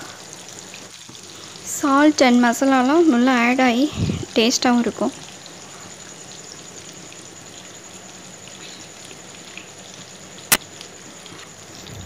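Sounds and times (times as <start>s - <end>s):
oil sizzling in a pan: 0.0s - 12.0s
sharp oil pop: 10.5s - 10.7s.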